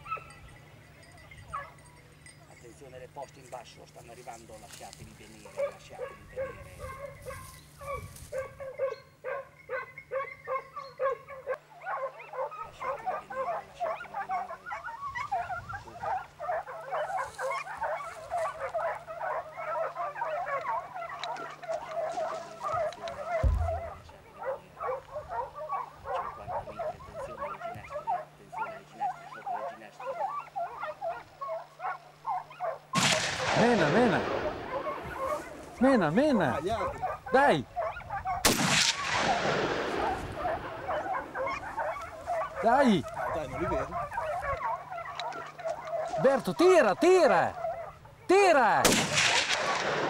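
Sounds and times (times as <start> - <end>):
dog barking: 0.0 - 0.4, 1.5 - 1.8, 5.4 - 33.0, 33.6 - 38.4, 39.2 - 48.2
many dogs yelping: 0.0 - 50.0
low thud: 23.4 - 24.0.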